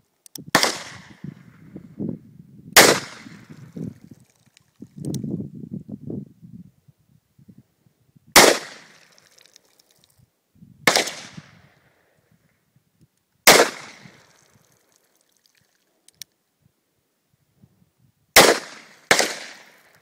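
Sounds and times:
faint clicks: 4.2 - 5.2, 14.3 - 16.4.

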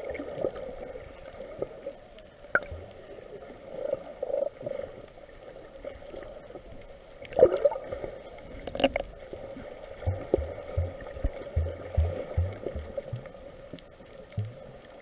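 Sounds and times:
small underwater clicks: 0.0 - 15.0
underwater gurgling: 0.0 - 15.0.

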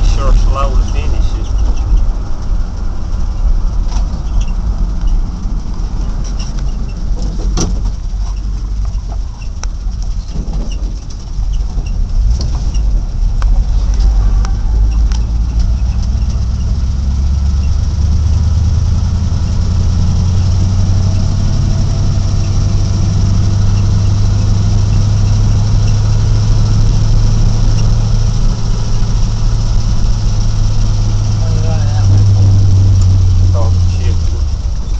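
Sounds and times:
vehicle engine hum: 0.0 - 34.9.

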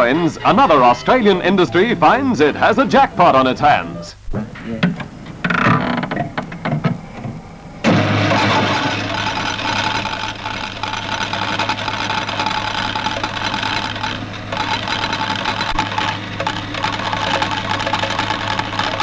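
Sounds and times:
poker machines clattering: 4.6 - 19.0.

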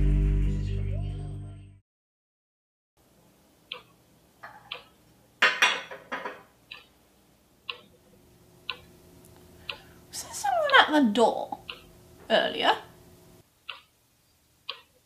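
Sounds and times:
clock ticking: 3.6 - 5.0, 6.7 - 7.0, 7.6 - 8.0, 8.6 - 9.9, 10.6 - 12.0, 13.6 - 14.0, 14.6 - 15.0.

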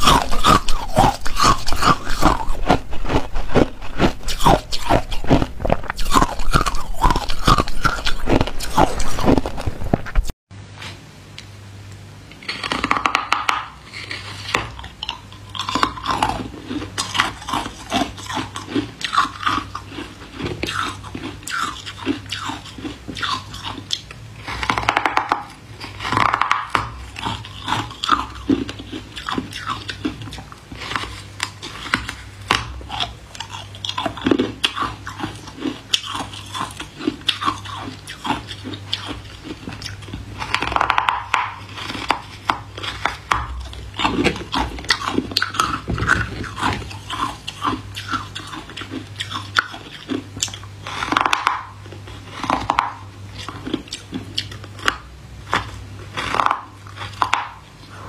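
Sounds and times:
ice crunching bites: 0.0 - 10.3
ice fragments crackling when chewed: 0.0 - 10.3, 12.4 - 58.0.

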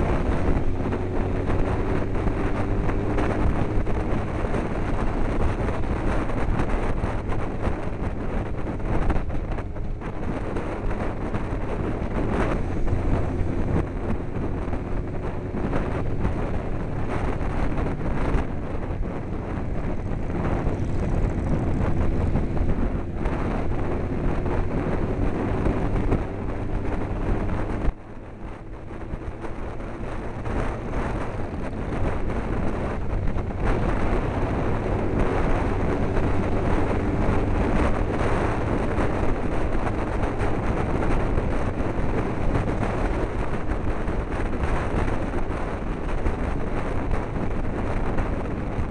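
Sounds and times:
faint motorcycle engine: 0.0 - 48.9
wind rushing over microphone: 0.0 - 48.9.

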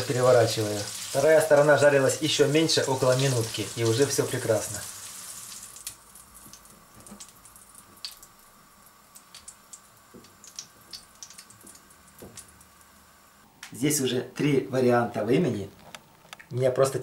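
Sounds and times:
faint steady hum: 0.0 - 17.0
wet clicks of food handling: 9.2 - 12.5.

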